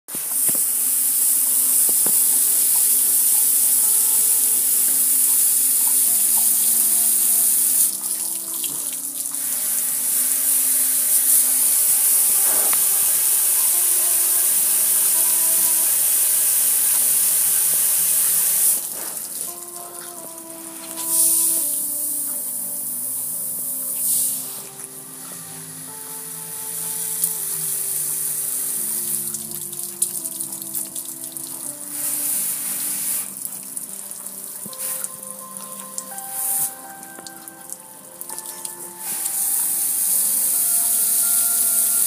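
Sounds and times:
hose spray hitting metal: 8.6s - 19.7s, 20.7s - 22.1s.

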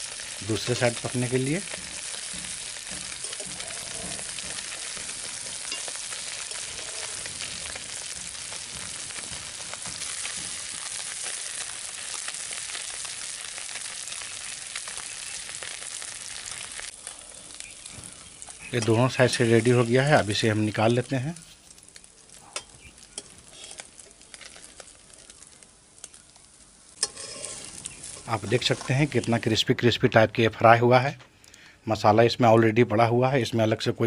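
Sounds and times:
fish sizzling in hot oil: 0.0s - 29.6s
metal spatula scraping pan: 1.4s - 10.9s, 22.6s - 24.0s, 27.0s - 29.3s.

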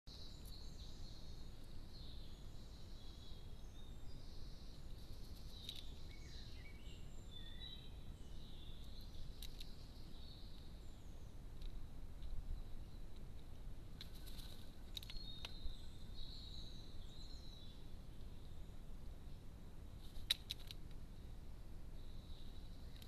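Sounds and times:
small birds singing: 0.1s - 23.0s.

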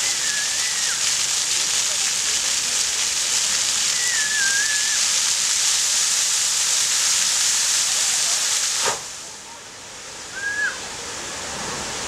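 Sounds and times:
fountain water jets splashing: 0.0s - 12.0s.

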